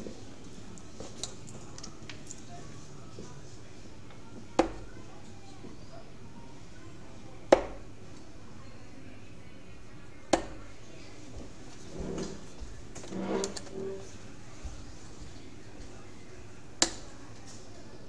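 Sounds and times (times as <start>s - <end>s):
darts striking dartboard: 7.5s - 7.8s, 10.3s - 10.6s.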